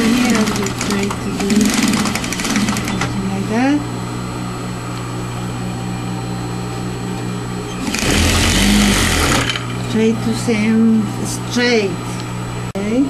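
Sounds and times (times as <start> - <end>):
sewing machine stitching: 0.0 - 3.1, 7.8 - 9.7.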